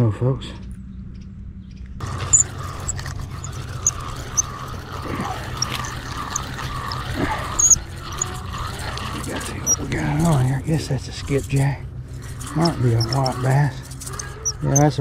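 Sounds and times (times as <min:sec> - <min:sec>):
fishing reel whirring: 0:02.0 - 0:15.0
faint high chirps: 0:02.3 - 0:08.4.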